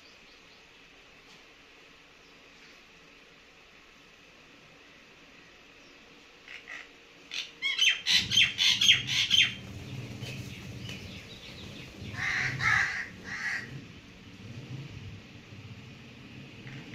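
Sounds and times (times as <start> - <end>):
birds calling: 5.6 - 14.2.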